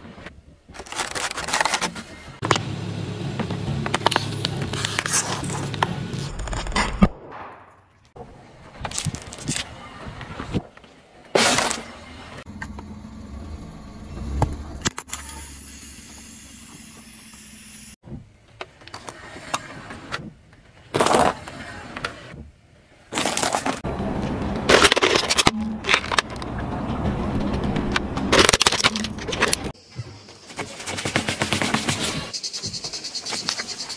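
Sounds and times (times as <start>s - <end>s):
tyre noise on asphalt: 1.1s - 7.2s, 8.2s - 18.0s, 23.1s - 33.9s
low car engine: 2.4s - 6.3s, 12.4s - 18.0s, 23.8s - 29.8s
car tyre crushing small objects: 24.5s - 26.5s, 28.3s - 29.8s.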